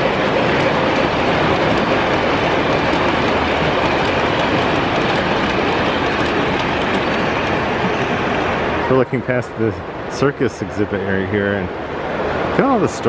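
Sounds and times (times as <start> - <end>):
wheels clicking: 0.0 - 9.4
model train rumbling past: 0.0 - 13.0.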